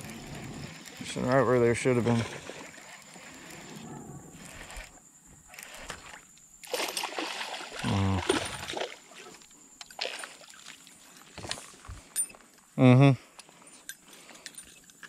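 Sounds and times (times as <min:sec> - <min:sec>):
fish splashing and thrashing: 0:01.8 - 0:03.8, 0:04.4 - 0:12.0.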